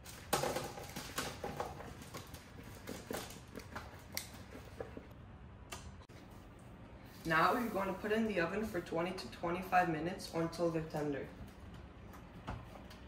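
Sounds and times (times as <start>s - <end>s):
sprouts tumbling onto baking sheet: 0.0s - 4.0s.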